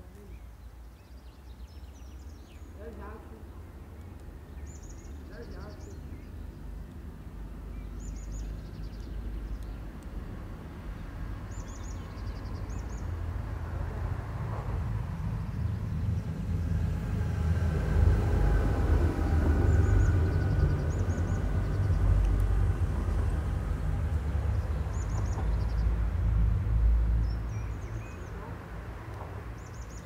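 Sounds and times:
bird chirping: 0:00.0 - 0:06.7, 0:07.6 - 0:10.0, 0:10.8 - 0:13.2, 0:19.5 - 0:22.2, 0:24.4 - 0:26.0, 0:27.2 - 0:28.5, 0:29.5 - 0:30.0
vehicle rumble approaching: 0:02.6 - 0:30.0.

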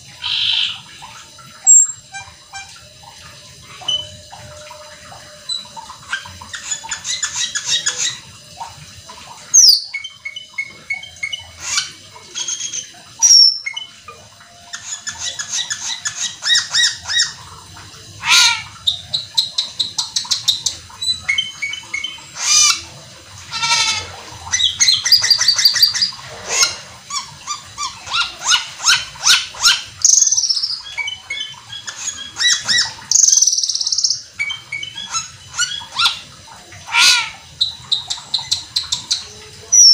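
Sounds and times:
starling singing: 0:00.2 - 0:00.9, 0:01.6 - 0:02.7, 0:09.6 - 0:13.9, 0:36.9 - 0:39.9.

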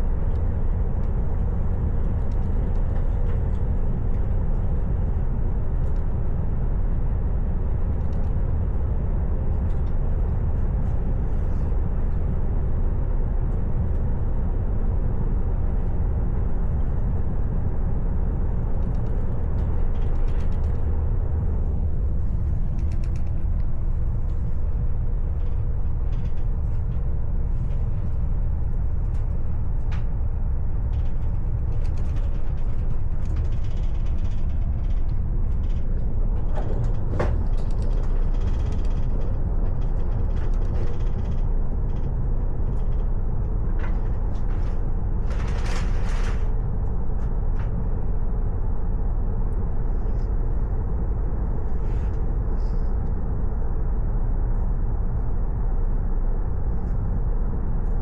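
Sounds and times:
train rumbling: 0:00.0 - 0:58.0
light creaks and clicks: 0:02.0 - 0:04.7, 0:18.7 - 0:47.8.

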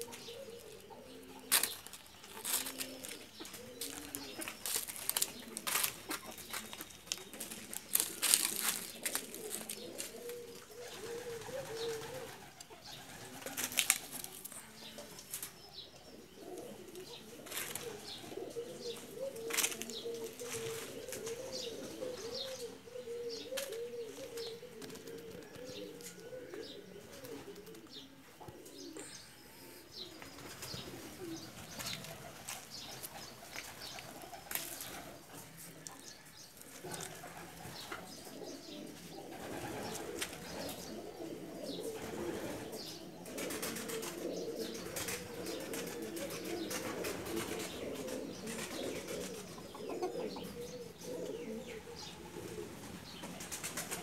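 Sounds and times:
birds giving low wavering calls: 0:00.0 - 0:54.0.

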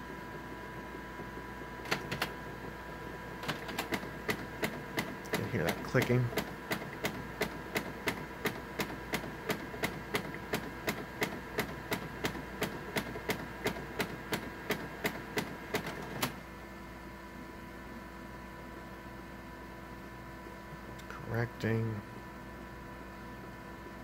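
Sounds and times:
printer humming: 0:00.0 - 0:24.0
printer clicking: 0:01.8 - 0:02.4, 0:03.4 - 0:16.4.

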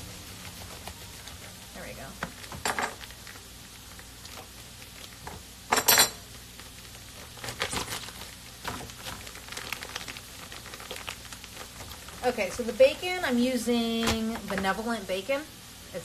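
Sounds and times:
plastic package rustling: 0:02.3 - 0:05.5, 0:06.2 - 0:13.3.

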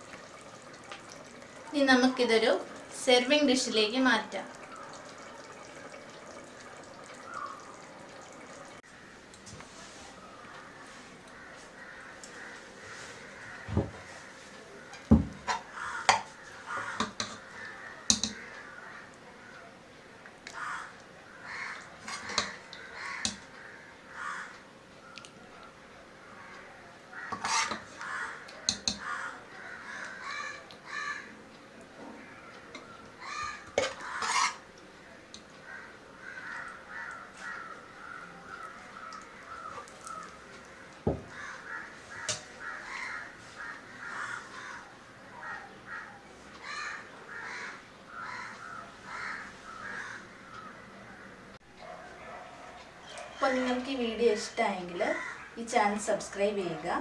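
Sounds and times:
ladle scraping a ceramic bowl: 0:22.0 - 0:22.6, 0:27.3 - 0:28.0, 0:33.7 - 0:34.6.

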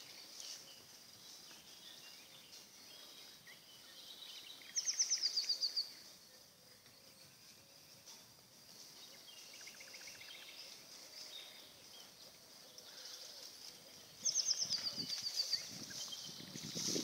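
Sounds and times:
birds chirping: 0:00.0 - 0:17.0
horses' hooves on sand: 0:07.3 - 0:17.0.

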